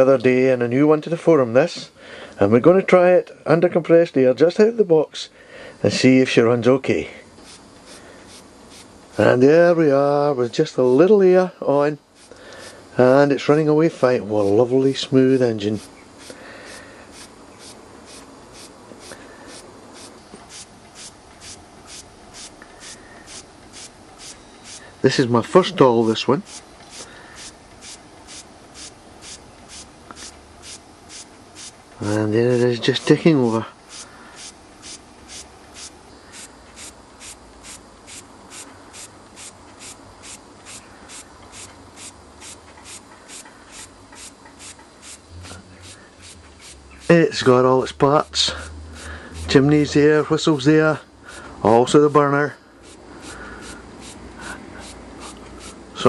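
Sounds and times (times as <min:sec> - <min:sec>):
toy steam engine hissing puffs: 0:07.4 - 0:09.4, 0:12.1 - 0:13.1, 0:14.0 - 0:47.5, 0:48.4 - 0:49.6, 0:51.2 - 0:51.9, 0:52.7 - 0:56.0.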